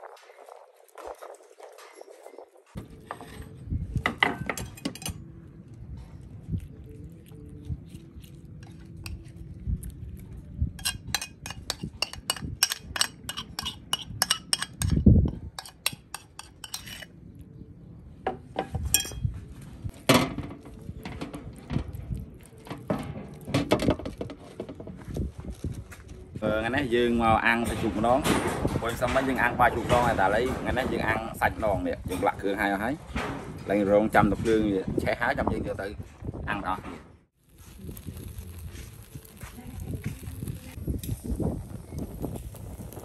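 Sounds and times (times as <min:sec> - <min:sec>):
dishes clattering on metal tray: 0:04.1 - 0:05.2
utensil scraping ceramic bowl: 0:10.8 - 0:15.0, 0:15.6 - 0:17.1.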